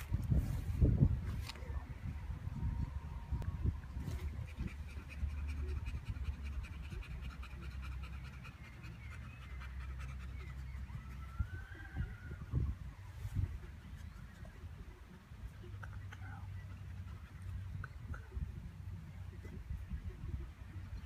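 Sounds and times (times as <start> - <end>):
dog panting: 4.3 - 10.9.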